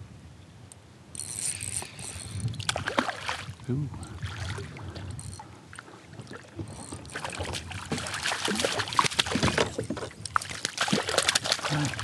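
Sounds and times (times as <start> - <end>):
fish splashing at water surface: 7.1 - 9.8, 10.4 - 12.0.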